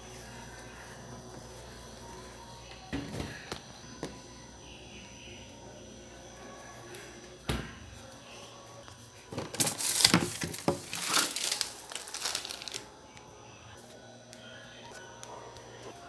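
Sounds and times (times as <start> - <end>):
crinkling and rustling: 9.2 - 12.9.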